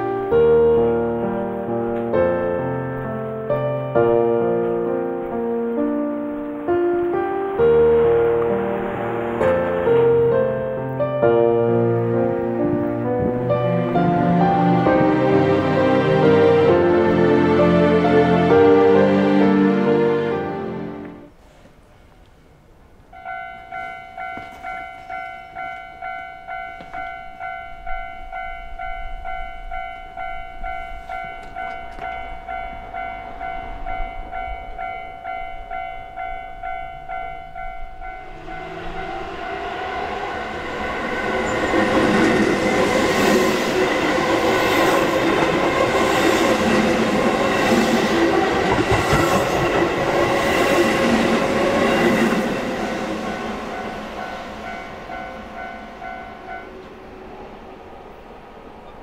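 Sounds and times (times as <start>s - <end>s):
electric train passing: 0.0s - 21.4s, 23.1s - 59.0s
level-crossing bell ringing: 23.2s - 50.4s, 51.0s - 56.9s
train wheel clatter: 38.6s - 54.2s.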